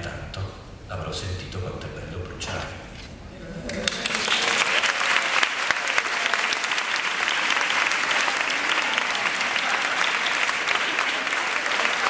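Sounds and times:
audience applauding: 0:03.7 - 0:12.0
close hands clapping: 0:03.7 - 0:12.0.

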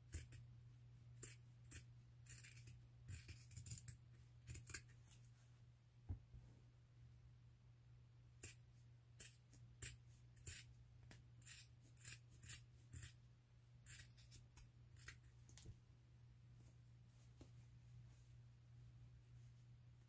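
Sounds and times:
scissors snipping fabric: 0:00.0 - 0:00.4, 0:01.2 - 0:04.9, 0:09.2 - 0:13.2, 0:13.8 - 0:15.2.

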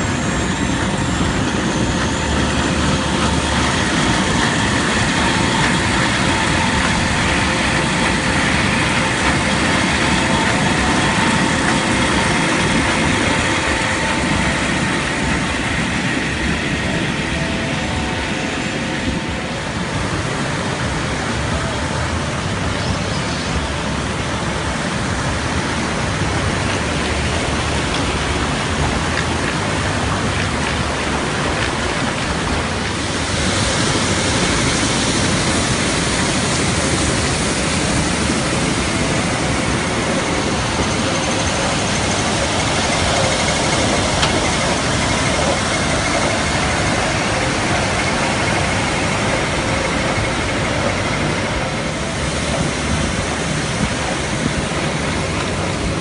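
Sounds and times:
machinery motor running: 0:00.0 - 0:56.0
rushing water: 0:00.0 - 0:56.0
water sprays hissing: 0:00.0 - 0:56.0.

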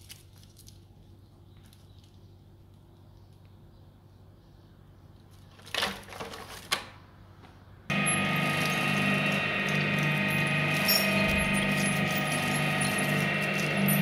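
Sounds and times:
industrial shredder humming: 0:07.9 - 0:14.0.

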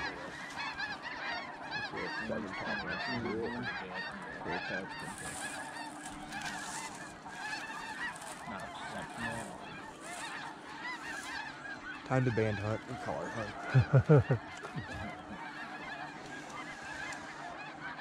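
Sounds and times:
geese honking: 0:00.0 - 0:18.0.

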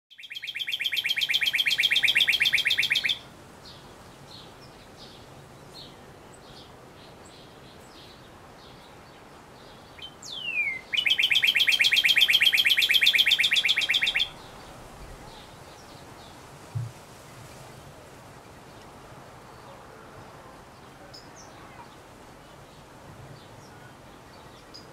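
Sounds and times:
bird trilling: 0:00.1 - 0:03.2, 0:10.0 - 0:14.6
downslurred bird whistle: 0:00.1 - 0:03.2, 0:10.3 - 0:14.4.

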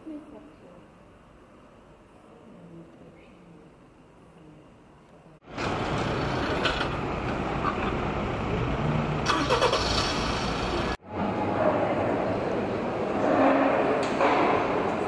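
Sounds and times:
indoor hall background noise: 0:00.0 - 0:08.7, 0:11.0 - 0:15.0
cars passing on busy road: 0:05.4 - 0:15.0.

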